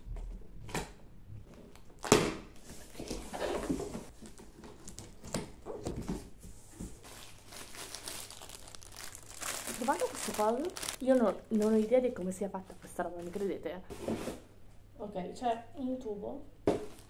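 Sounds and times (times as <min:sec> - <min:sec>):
cardboard rustling and scraping: 0:13.2 - 0:14.5.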